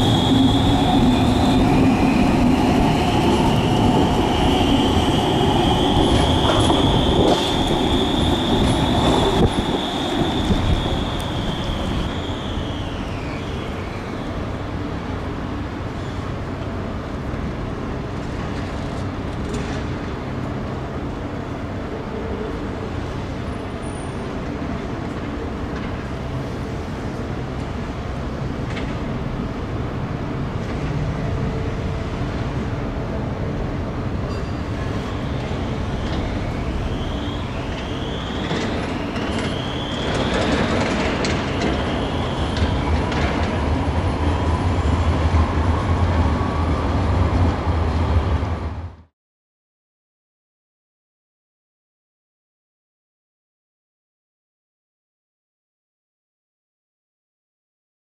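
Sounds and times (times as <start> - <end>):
street noise: 0.0 - 49.1
tram humming: 0.0 - 49.1.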